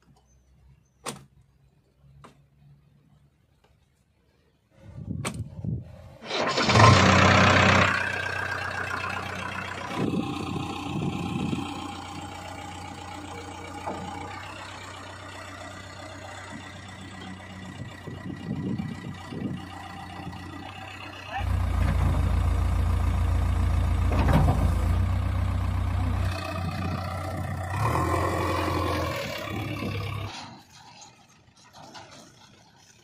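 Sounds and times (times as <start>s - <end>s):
diesel engine revving and idling: 6.1s - 31.7s
engine starter cranking: 6.2s - 11.5s.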